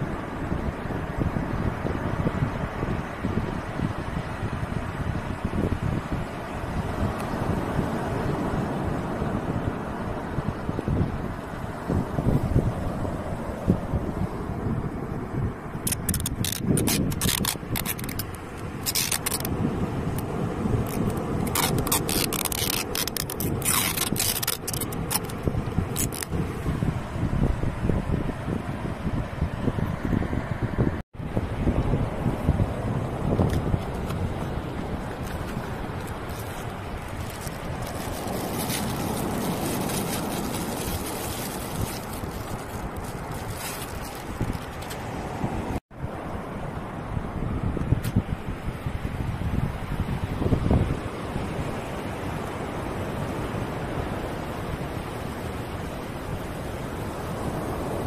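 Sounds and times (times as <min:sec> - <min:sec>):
sea surf: 0:00.0 - 0:58.0
wind: 0:00.0 - 0:58.0
tape ripping off roll: 0:15.9 - 0:19.5, 0:20.9 - 0:25.3, 0:25.9 - 0:26.3.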